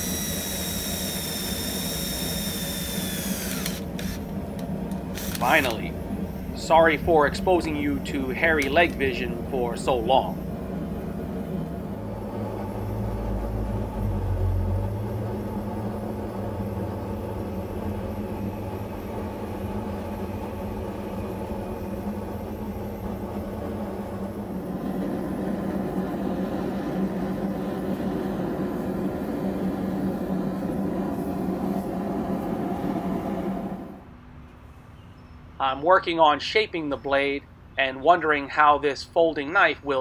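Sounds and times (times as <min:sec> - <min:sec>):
machine humming: 0:00.0 - 0:34.2.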